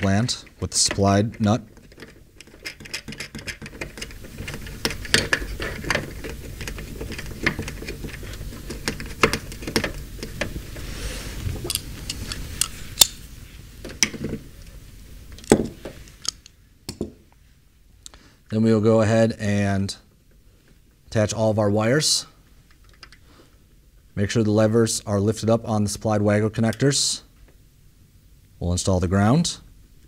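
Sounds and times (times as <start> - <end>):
wires knocking against housing: 0.7 - 10.8
small clicks and rattles of parts: 0.8 - 10.6, 22.6 - 23.2.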